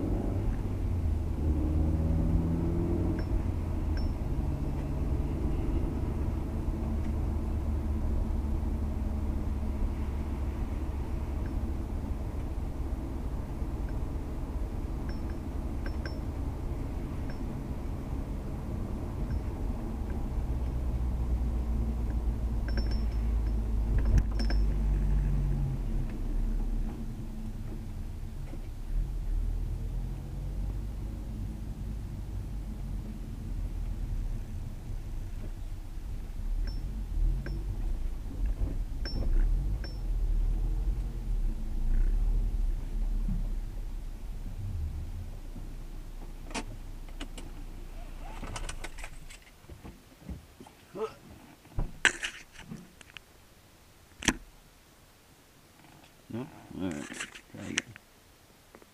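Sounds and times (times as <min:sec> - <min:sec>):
car engine and tyre rumble: 0:00.0 - 0:58.9
light clinks: 0:03.2 - 0:04.3, 0:15.0 - 0:16.3, 0:22.6 - 0:24.8.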